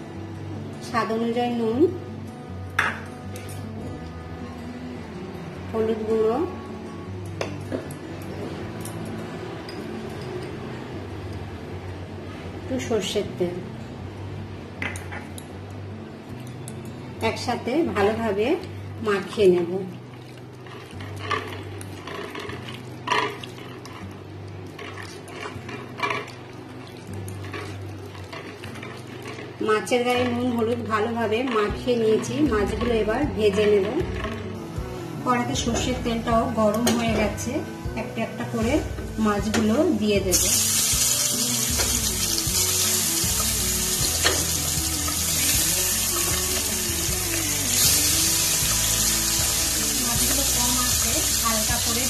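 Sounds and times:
fish sizzling in hot oil: 0:40.3 - 0:52.0.

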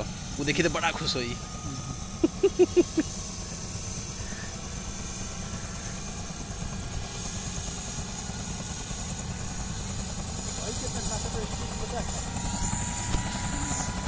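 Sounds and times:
helicopter idling rumble: 0:00.0 - 0:14.0.

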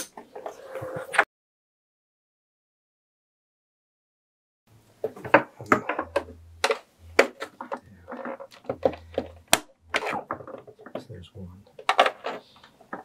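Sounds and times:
hard plastic clicks and knocks: 0:05.0 - 0:13.0.

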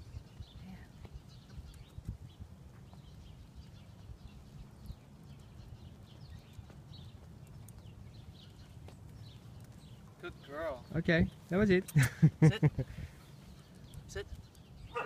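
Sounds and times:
wind rumble on microphone: 0:00.0 - 0:10.2
small birds chirping: 0:00.0 - 0:15.0
footsteps on asphalt: 0:00.3 - 0:10.3.

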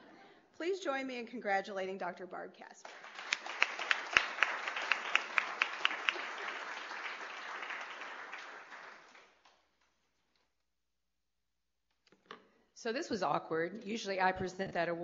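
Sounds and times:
audience applauding: 0:02.9 - 0:09.6.

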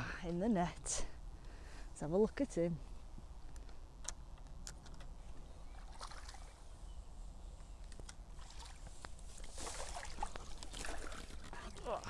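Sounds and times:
water sloshing and splashing: 0:05.7 - 0:06.6, 0:08.3 - 0:12.0.

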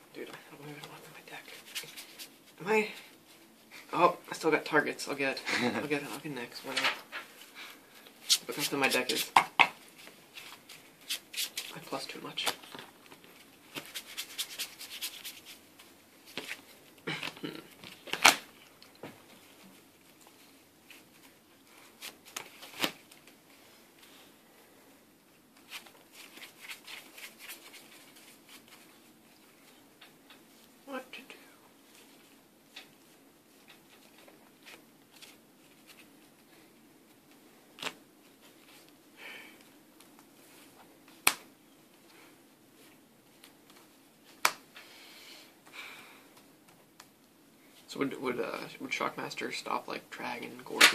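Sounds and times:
trading cards shuffled by hand: 0:10.0 - 0:15.6, 0:25.6 - 0:28.9.

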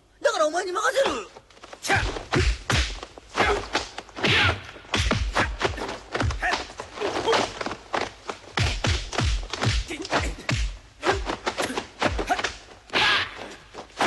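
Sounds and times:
punch and kick impact thuds: 0:01.9 - 0:06.7, 0:08.6 - 0:11.4
fighters grunting: 0:05.3 - 0:07.7.

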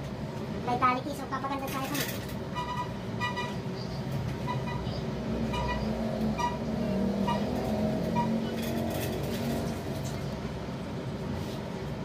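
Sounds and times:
vehicle passing: 0:05.1 - 0:11.0.

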